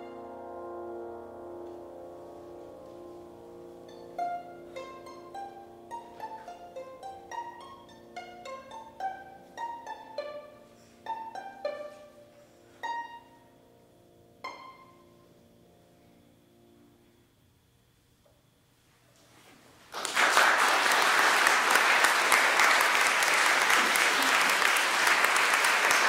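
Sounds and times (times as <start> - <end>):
plucked high notes: 0.0 - 13.5, 14.4 - 15.3
violin and piano playing: 0.0 - 15.6
faint sustained low note: 0.0 - 17.8.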